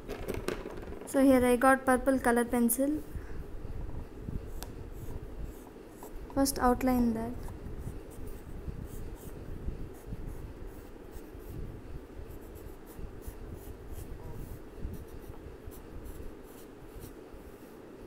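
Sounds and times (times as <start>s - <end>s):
colored pencil scratching on paper: 7.8s - 11.6s, 12.3s - 17.7s.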